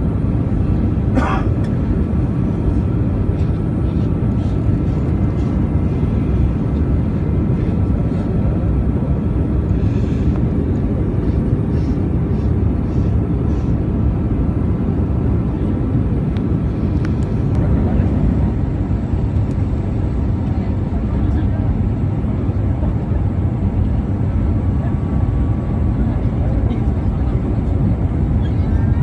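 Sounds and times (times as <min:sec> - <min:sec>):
jet engine cabin roar: 0:00.0 - 0:29.0.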